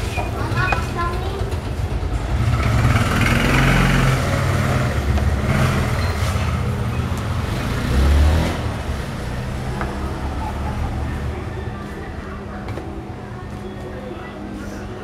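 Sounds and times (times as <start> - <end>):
vehicle engine humming: 0.0 - 15.0.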